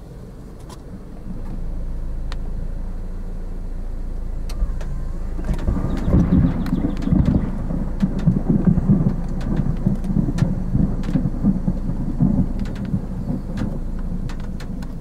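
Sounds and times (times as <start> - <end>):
raindrops ticking: 4.5 - 15.0
storm wind buffeting microphone: 4.5 - 15.0.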